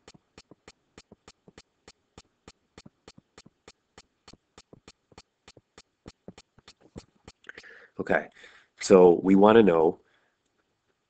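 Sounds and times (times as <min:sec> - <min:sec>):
stylus tapping on pen tablet: 0:00.0 - 0:07.4.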